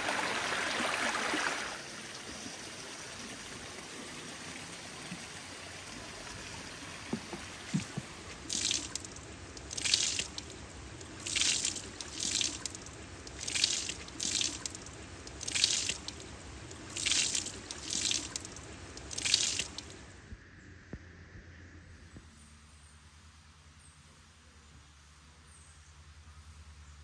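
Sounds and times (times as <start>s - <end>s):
falling water splashing: 0.0s - 1.9s, 3.0s - 20.1s
low water trickle: 0.0s - 20.2s.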